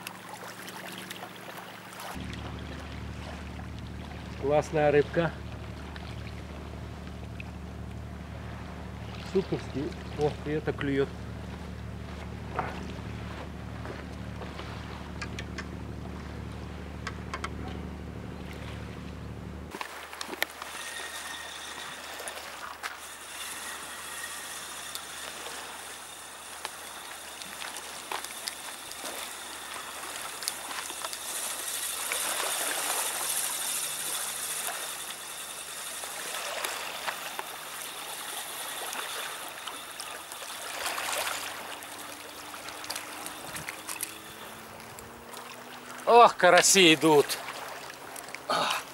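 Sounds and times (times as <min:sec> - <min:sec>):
waves lapping on pebble shore: 0:19.7 - 0:48.9.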